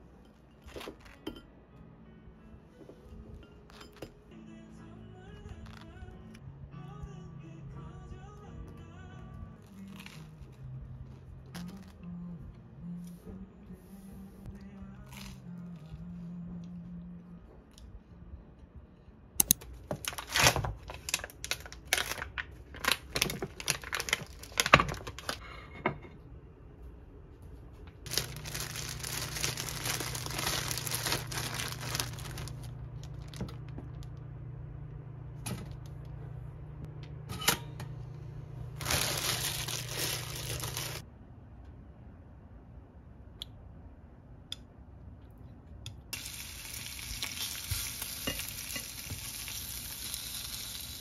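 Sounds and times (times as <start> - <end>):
plastic packaging tearing: 9.6 - 10.6, 19.9 - 25.4, 28.1 - 33.7, 38.8 - 41.0
kitchen appliance humming: 28.1 - 41.0.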